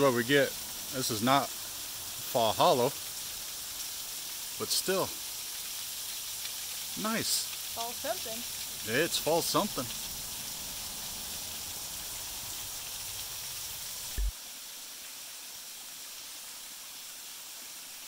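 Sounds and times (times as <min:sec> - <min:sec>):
small waterfall splashing: 0:00.0 - 0:18.0
low thump: 0:14.1 - 0:14.3.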